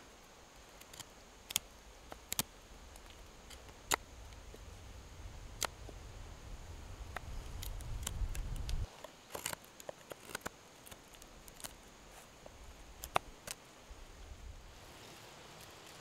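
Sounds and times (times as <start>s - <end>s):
knife carving a stick: 0.7s - 4.6s, 7.1s - 13.6s.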